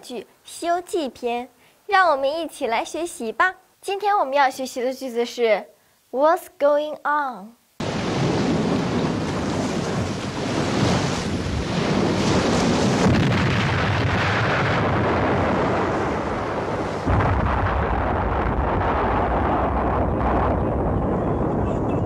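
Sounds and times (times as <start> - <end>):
sea surf: 7.8 - 13.6
deep rumble: 7.8 - 22.0
wind: 7.8 - 22.0.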